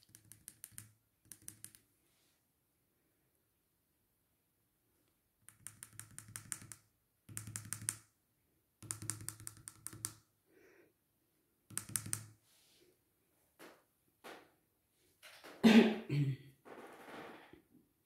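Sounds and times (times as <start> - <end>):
eraser tapping on paper: 5.5 - 8.0, 8.8 - 10.2.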